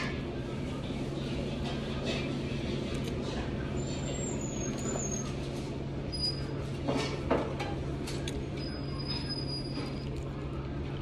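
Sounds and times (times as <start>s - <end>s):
low room hum: 0.0s - 11.0s
faint high squeals: 6.1s - 6.6s, 8.6s - 10.2s.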